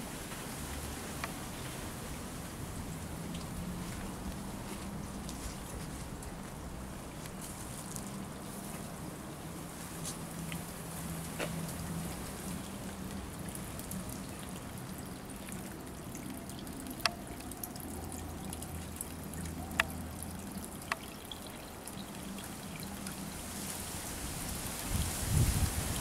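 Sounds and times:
water trickling into pond: 0:00.0 - 0:26.0
sharp water plinks: 0:13.4 - 0:23.2.

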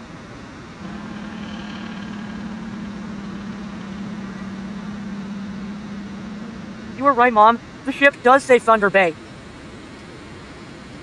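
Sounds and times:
low engine hum: 0:00.0 - 0:08.2.

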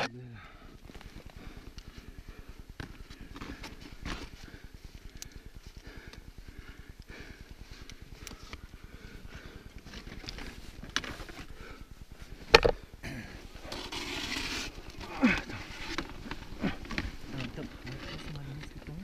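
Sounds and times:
gear scraping against snow: 0:13.3 - 0:18.8
hissing scrape: 0:13.6 - 0:15.0.

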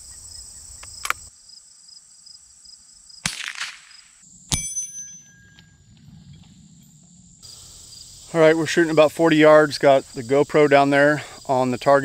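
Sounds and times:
suppressed rifle shot: 0:03.2 - 0:05.0
bullet striking ringing steel plate: 0:04.5 - 0:07.0.

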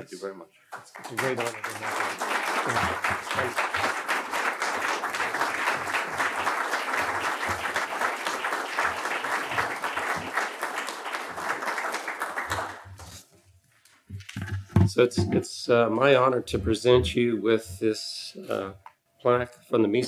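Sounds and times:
audience applauding: 0:00.7 - 0:13.2.

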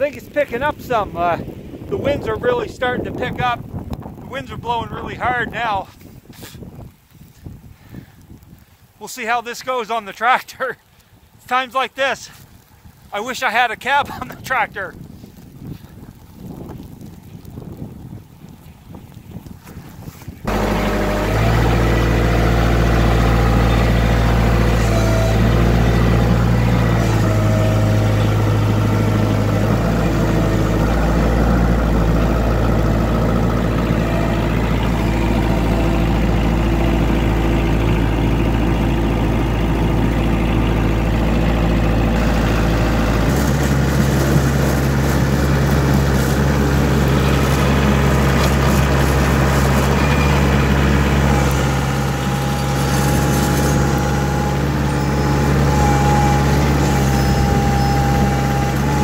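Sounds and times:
tractor diesel engine running: 0:00.0 - 0:05.9, 0:20.4 - 0:59.0.

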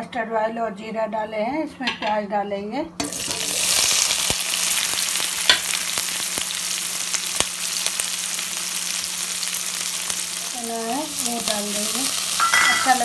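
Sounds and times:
onions sizzling in hot oil: 0:03.0 - 0:13.0.

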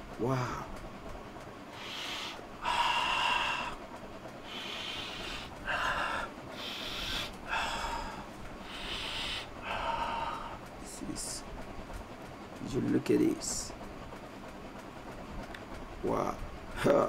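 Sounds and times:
man sniffing and breathing: 0:01.7 - 0:03.8, 0:04.4 - 0:10.6.

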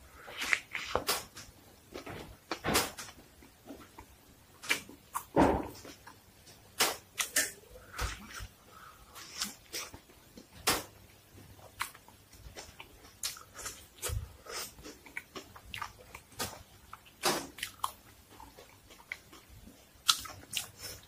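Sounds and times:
person chewing crunchy sandwich: 0:00.2 - 0:01.0, 0:11.6 - 0:21.0.

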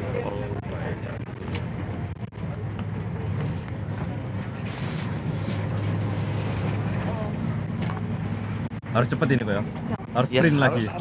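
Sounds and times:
ferry engine drone: 0:00.0 - 0:11.0
wind: 0:00.0 - 0:11.0.

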